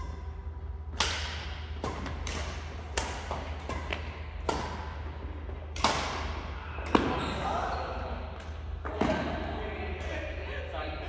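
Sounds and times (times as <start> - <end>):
rackets striking shuttlecock: 0.0 - 7.2.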